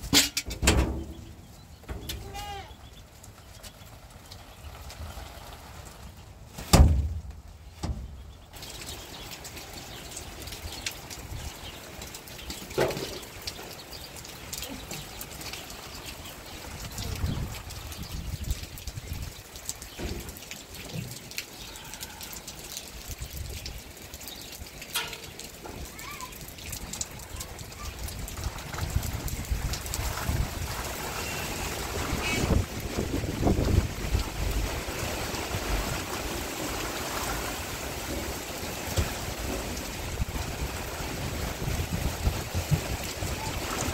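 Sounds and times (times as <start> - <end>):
rain pattering on ground: 0.0 - 43.9
loud thump: 6.7 - 8.0
wind gusts: 15.2 - 20.0, 26.4 - 43.9.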